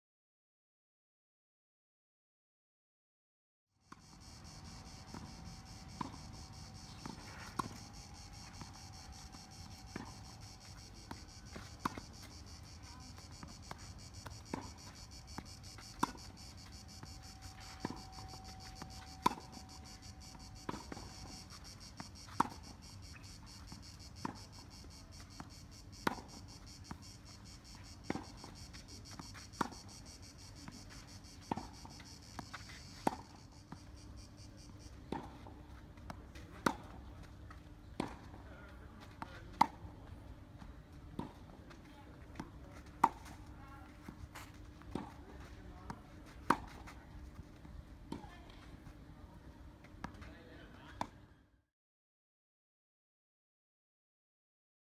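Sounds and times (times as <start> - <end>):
high insect buzz: 3.8 - 35.0
ball bouncing on clay court: 3.9 - 37.0.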